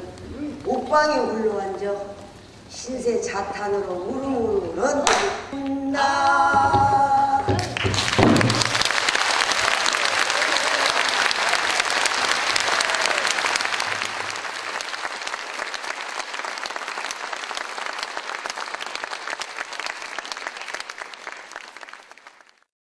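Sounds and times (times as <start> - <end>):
audience applauding: 7.5 - 22.7.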